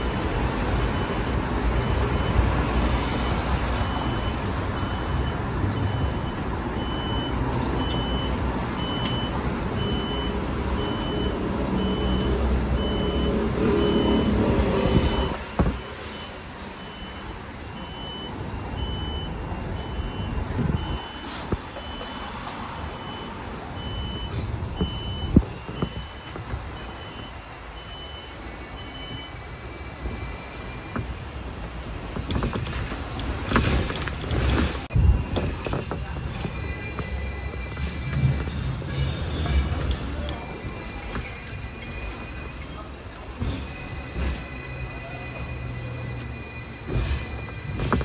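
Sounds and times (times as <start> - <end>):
street vehicle rumble: 0.0 - 48.0
electronic warning beeps: 3.3 - 31.3.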